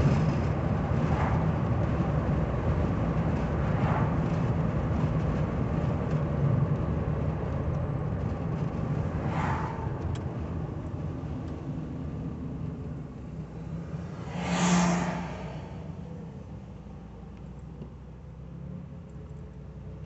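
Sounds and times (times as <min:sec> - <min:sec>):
vehicle rushing past: 0:00.0 - 0:05.3, 0:08.6 - 0:11.9, 0:13.3 - 0:16.7
car engine and road noise: 0:00.0 - 0:20.0.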